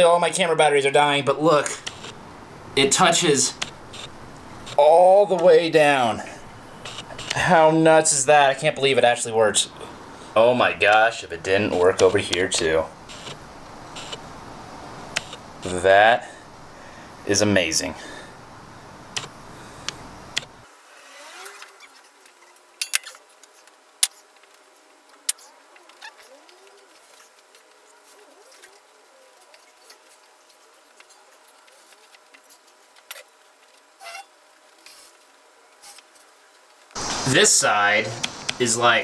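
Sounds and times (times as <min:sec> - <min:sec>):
camera handling rustle: 0:06.8 - 0:07.4.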